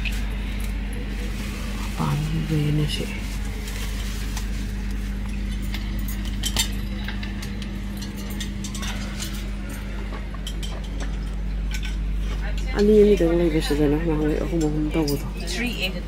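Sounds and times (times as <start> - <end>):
train coach air conditioning hum: 0.0 - 16.0
light clinks and clicks: 4.8 - 13.2.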